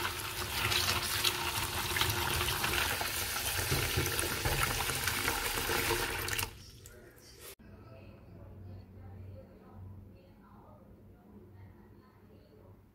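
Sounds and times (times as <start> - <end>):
tap water running: 0.0 - 7.0.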